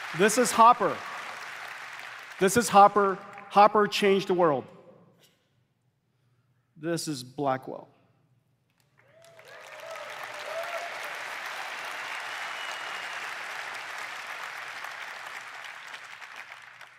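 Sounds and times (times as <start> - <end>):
audience applause: 0.0 - 3.1, 9.0 - 16.9.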